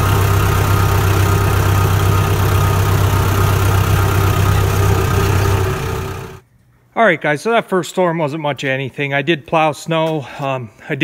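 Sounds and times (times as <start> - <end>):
tractor engine idling: 0.0 - 6.4.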